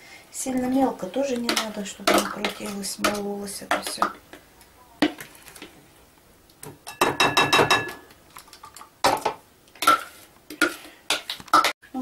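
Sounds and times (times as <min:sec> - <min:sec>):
glass ringing: 0:06.9 - 0:08.0.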